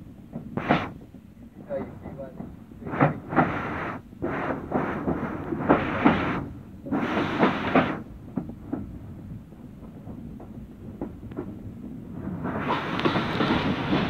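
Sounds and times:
steam locomotive exhaust beats: 0:00.0 - 0:14.0
train running rumble: 0:00.0 - 0:14.0
wheels clicking on track: 0:04.4 - 0:14.0.

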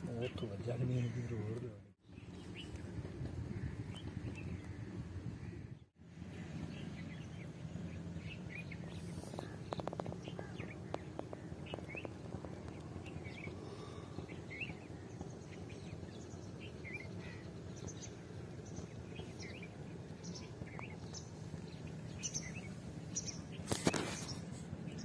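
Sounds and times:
outdoor background noise: 0:00.0 - 0:25.0
small birds chirping: 0:00.0 - 0:25.0.

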